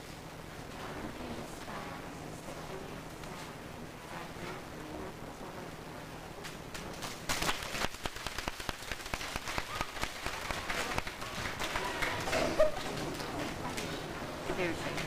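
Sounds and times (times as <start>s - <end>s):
audience clapping: 6.7s - 14.3s.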